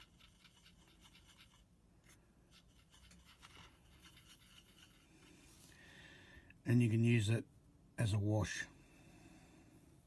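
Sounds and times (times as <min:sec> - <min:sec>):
paintbrush scratching: 0:00.0 - 0:05.7.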